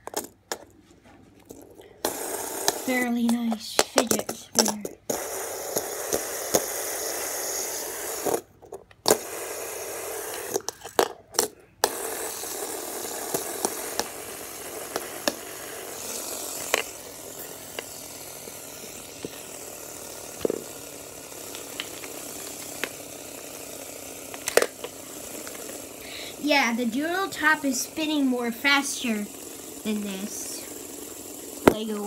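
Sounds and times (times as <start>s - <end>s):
spinning top whirring on paper: 1.4s - 32.0s
pen tip scratching: 2.0s - 8.4s, 11.8s - 19.6s, 20.4s - 25.9s.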